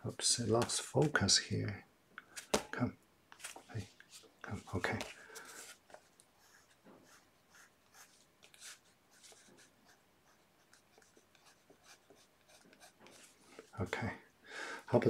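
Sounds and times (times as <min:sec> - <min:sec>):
pencil scratching on paper: 0:06.4 - 0:13.7.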